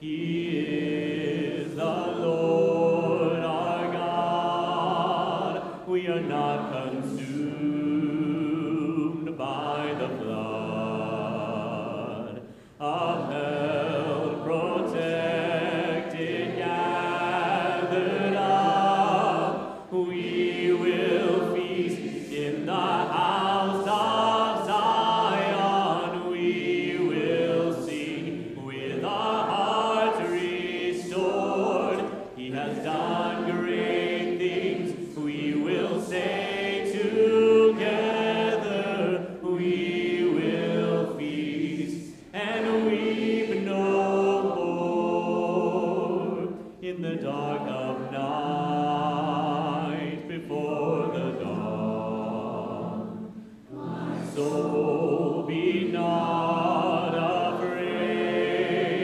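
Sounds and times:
congregation singing a hymn: 0.0 - 59.0
man singing into a microphone: 43.7 - 52.6.

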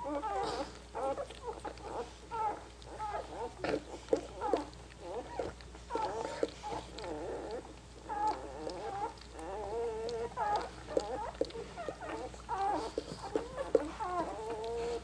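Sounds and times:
puppies squeaking and whimpering: 0.0 - 15.0
wet licking clicks: 3.6 - 14.9.

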